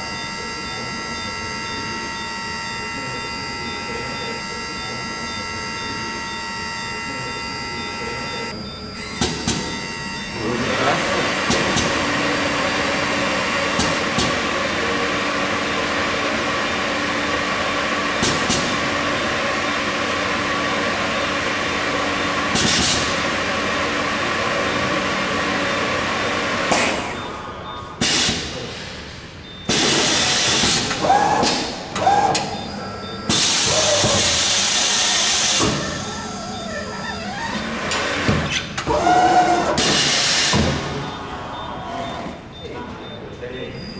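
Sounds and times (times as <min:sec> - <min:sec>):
tyre changer machine running: 0:00.0 - 0:43.6.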